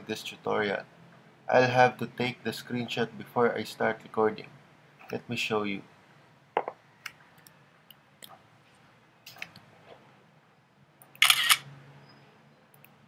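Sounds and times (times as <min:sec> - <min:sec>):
camera shutter sound: 0:11.2 - 0:11.7.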